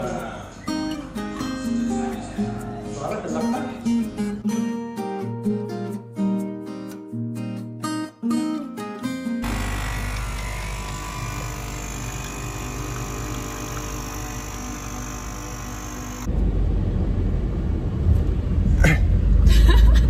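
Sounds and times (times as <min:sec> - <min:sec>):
espresso machine pump humming: 0:09.4 - 0:16.3.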